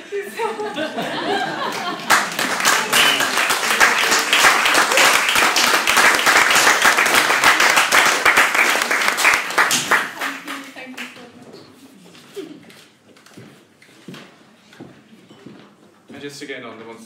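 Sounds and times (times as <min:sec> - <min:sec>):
audience applauding: 0:00.7 - 0:11.2.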